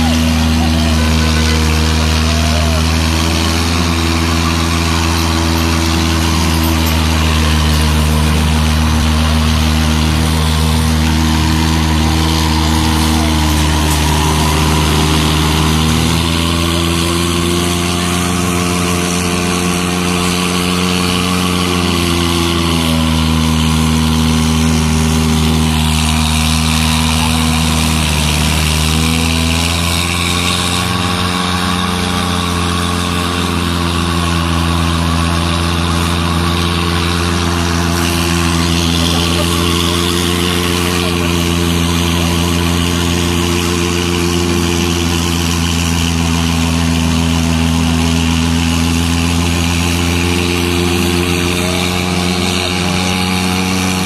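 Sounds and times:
car engines revving: 0.0s - 54.0s
tyre hiss from spinning wheels: 0.0s - 54.0s.

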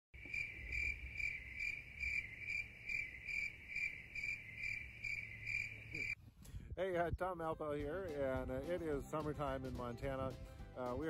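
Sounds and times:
cricket chirping: 0.2s - 6.2s.

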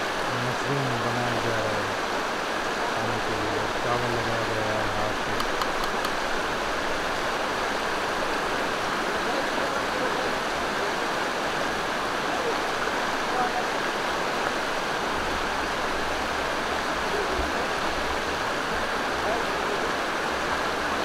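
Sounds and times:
stream rushing over rocks: 0.0s - 21.0s
faint low voices: 2.8s - 5.4s, 16.8s - 20.1s.

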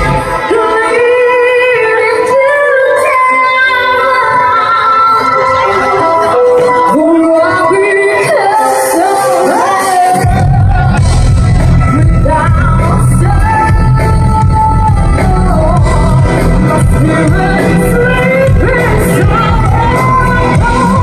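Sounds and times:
live pop band playing: 0.0s - 21.0s
woman singing: 0.0s - 21.0s
heavy bass: 10.2s - 21.0s.

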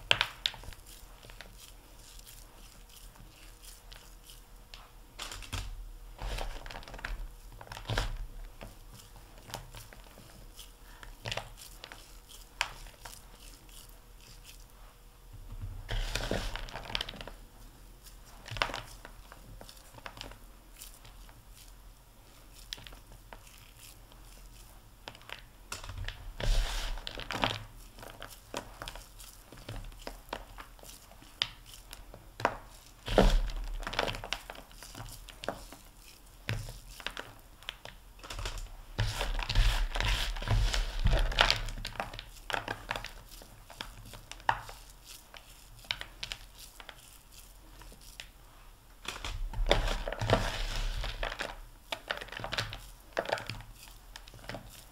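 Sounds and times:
hands crunching crumbly mixture: 0.0s - 15.0s, 15.8s - 54.9s.

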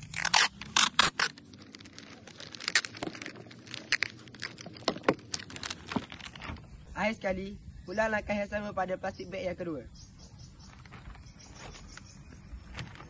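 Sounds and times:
plastic bag crinkling: 0.0s - 6.7s
tape pulled off roll: 0.0s - 6.7s.

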